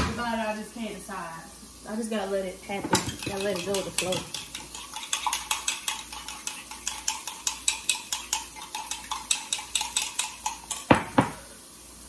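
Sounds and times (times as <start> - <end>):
fork beating eggs in a cup: 2.7 - 11.0.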